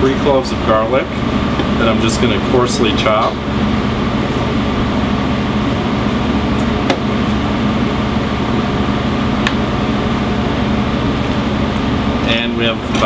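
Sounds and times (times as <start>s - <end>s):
ventilation machinery hum: 0.0s - 13.0s.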